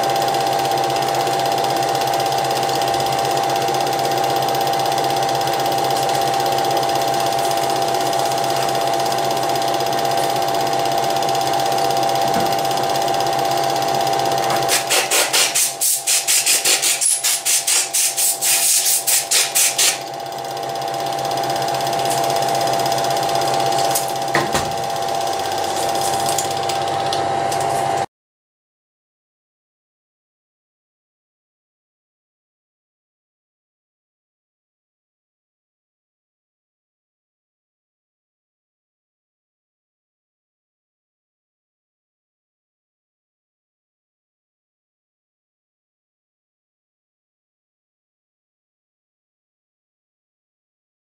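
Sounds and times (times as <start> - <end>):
film projector whirring: 0.0 - 28.1.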